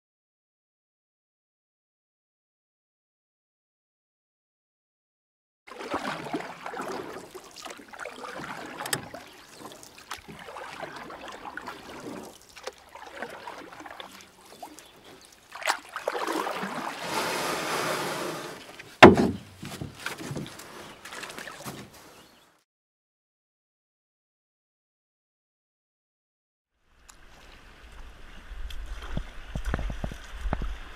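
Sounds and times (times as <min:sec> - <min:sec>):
water rushing: 0:05.7 - 0:19.3
water splashing and lapping: 0:05.7 - 0:22.5, 0:26.8 - 0:30.9
knocks on canoe: 0:19.0 - 0:20.5.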